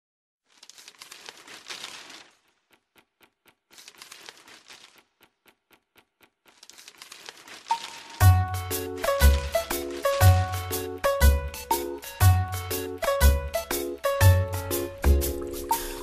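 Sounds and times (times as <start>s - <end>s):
crackling crinkling noise: 0.4s - 11.8s
evenly spaced ticks: 1.0s - 10.2s.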